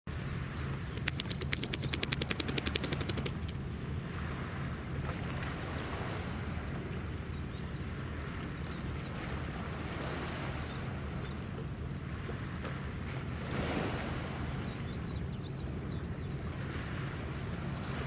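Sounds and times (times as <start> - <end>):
rapid clicking rattle: 1.0 - 3.6
ship engine droning: 3.1 - 18.0.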